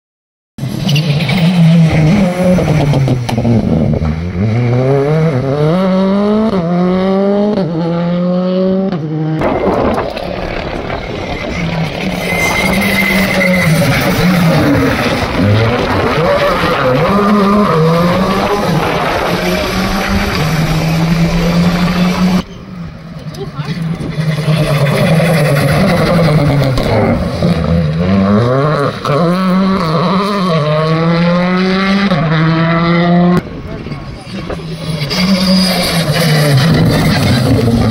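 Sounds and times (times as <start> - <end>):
rally car engine accelerating: 0.6 - 37.9
rough rushing noise: 9.2 - 27.8.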